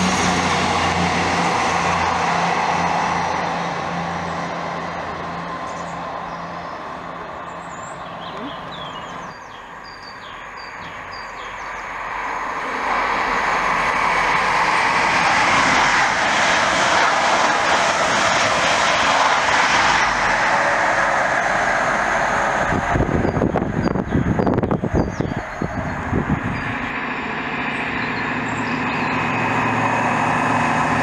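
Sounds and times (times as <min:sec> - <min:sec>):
approaching train hiss and rumble: 0:00.0 - 0:31.0
passing train hum: 0:00.0 - 0:31.0
birds chirping: 0:05.3 - 0:12.0, 0:23.2 - 0:29.7.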